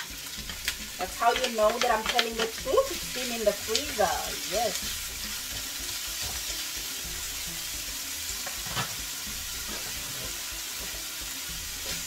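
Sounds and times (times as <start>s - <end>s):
rice sizzling in oil: 0.0s - 12.0s
utensil scraping a pan: 8.4s - 10.9s.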